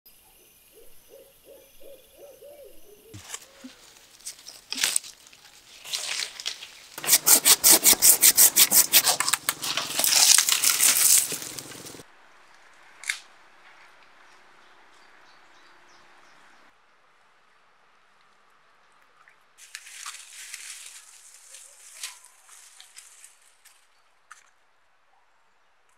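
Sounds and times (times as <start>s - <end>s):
faint outdoor background: 0.0s - 25.9s
hand saw cutting branch: 5.9s - 12.0s.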